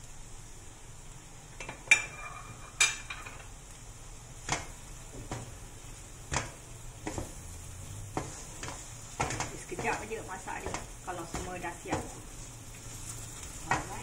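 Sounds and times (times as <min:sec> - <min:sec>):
wooden spatula scraping a wok: 0:06.4 - 0:14.0.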